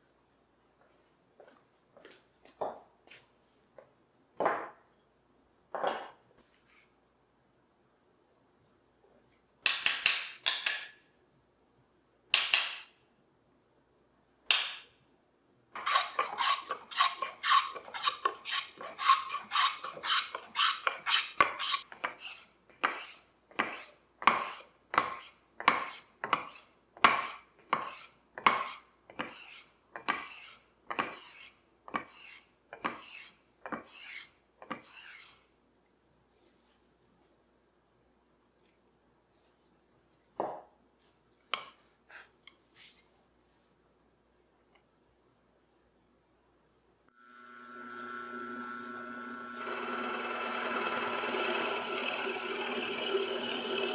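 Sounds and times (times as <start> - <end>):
hand plane scraping wood: 15.8 - 35.4, 49.6 - 53.9.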